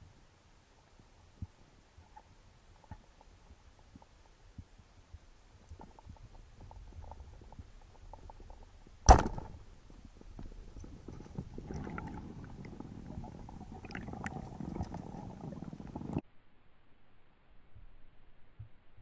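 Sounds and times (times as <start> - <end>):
speargun firing crack: 9.1 - 9.6
underwater rushing with clicks: 10.2 - 16.2.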